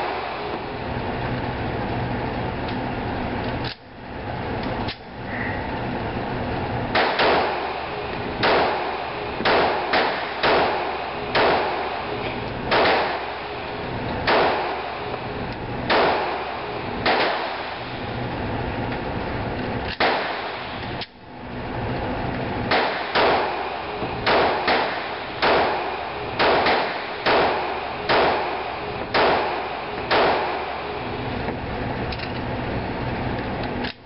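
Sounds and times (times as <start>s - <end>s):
pistol shots echoing indoors: 6.9s - 15.2s, 15.8s - 18.0s, 19.9s - 20.9s, 22.7s - 31.1s.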